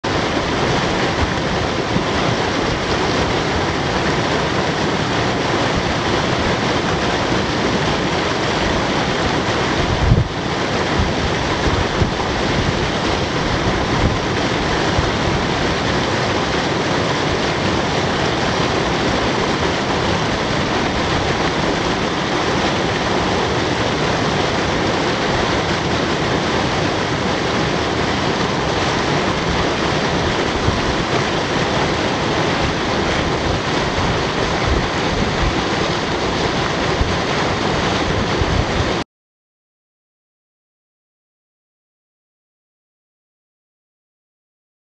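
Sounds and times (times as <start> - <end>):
water running over rocks: 0.0 - 39.0.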